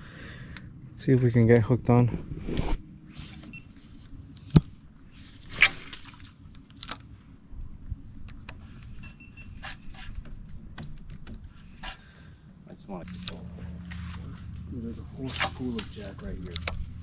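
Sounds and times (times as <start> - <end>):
low background hum: 0.0 - 17.0.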